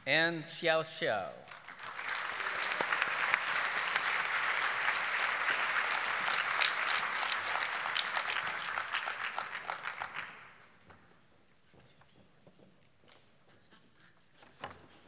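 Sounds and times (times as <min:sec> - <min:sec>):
audience applause: 0:01.5 - 0:10.6.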